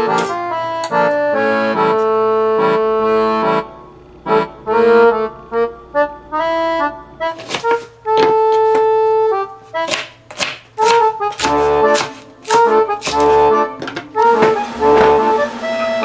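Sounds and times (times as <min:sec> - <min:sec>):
instrumental background music: 0:00.0 - 0:16.0
knife chopping on wooden board: 0:00.1 - 0:01.0, 0:07.4 - 0:08.9, 0:09.8 - 0:15.3.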